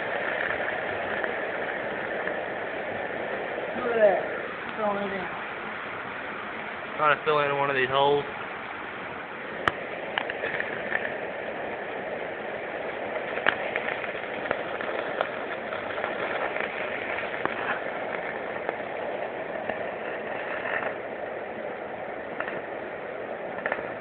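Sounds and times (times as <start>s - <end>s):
welding arc crackling hiss: 0.0s - 24.0s
welding arc pops: 13.2s - 18.8s, 23.5s - 24.0s.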